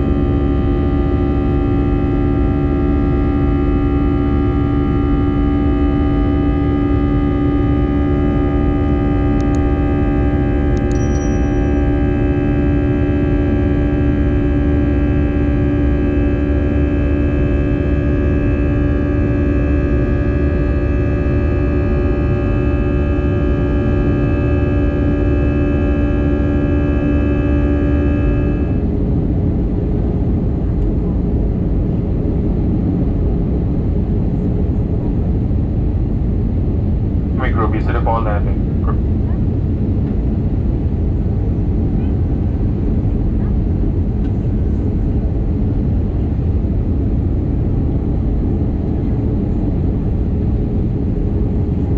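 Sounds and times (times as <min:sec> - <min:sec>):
steady held tones hum: 0:00.0 - 0:29.1
airliner cabin rumble: 0:00.0 - 0:51.9.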